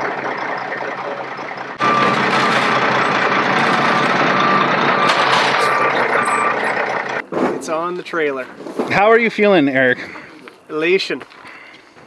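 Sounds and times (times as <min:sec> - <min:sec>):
diesel truck engine running: 0:00.0 - 0:07.2
back-up alarm beeping: 0:01.8 - 0:07.2.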